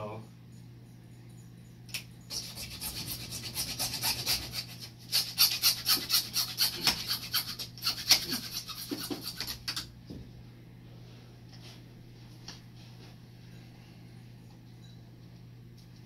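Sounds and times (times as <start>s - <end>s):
hacksaw cutting plastic pipe: 2.3s - 9.8s.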